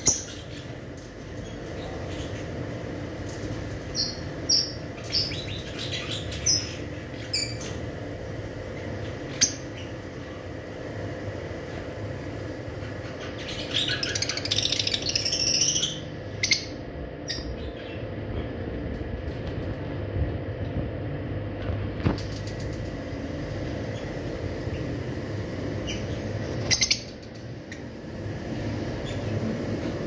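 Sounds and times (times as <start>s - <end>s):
lovebirds chirping: 0.0s - 2.6s, 3.9s - 7.8s, 8.8s - 10.2s, 12.8s - 18.2s, 25.7s - 27.9s.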